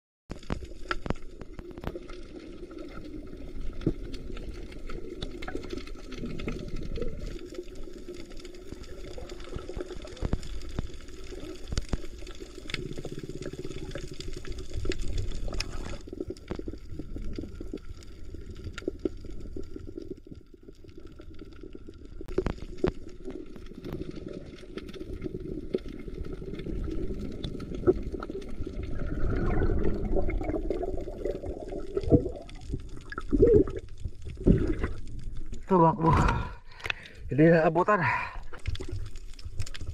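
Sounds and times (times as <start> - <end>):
underwater water rumbling and sloshing: 0.3 - 39.9
sharp underwater clicks: 36.2 - 37.2.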